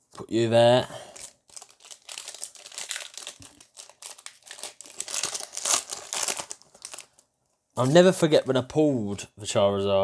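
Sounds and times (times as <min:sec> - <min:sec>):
foil wrapper crinkling: 0:01.0 - 0:07.2.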